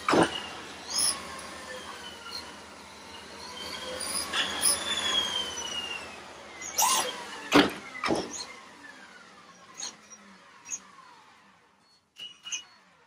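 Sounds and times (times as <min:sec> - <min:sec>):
electric motor whine: 0:00.0 - 0:11.8.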